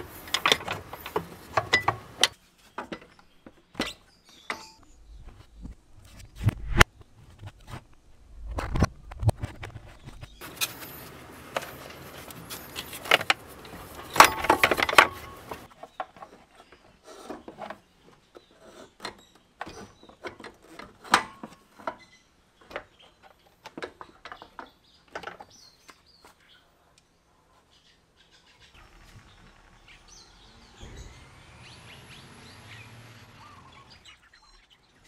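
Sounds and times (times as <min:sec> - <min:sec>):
scraping and rustling with clinks: 0:10.3 - 0:17.8.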